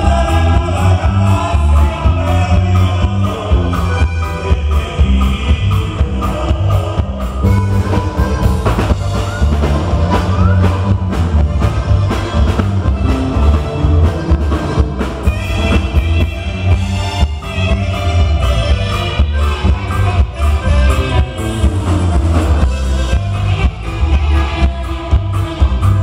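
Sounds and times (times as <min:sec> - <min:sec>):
drum kit beat: 0:00.0 - 0:26.0
electric bass: 0:00.0 - 0:26.0
button accordion: 0:06.0 - 0:26.0
alto saxophone: 0:07.4 - 0:26.0.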